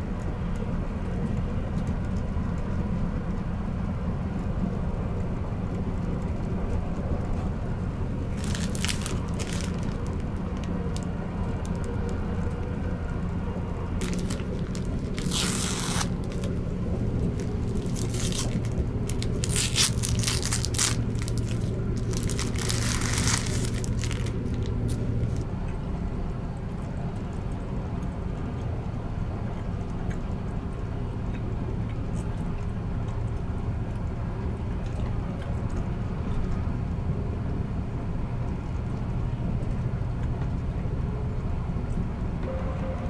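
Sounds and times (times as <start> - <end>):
train running rumble: 0.7 - 26.0
plastic film crinkling: 8.3 - 11.9, 14.0 - 25.4.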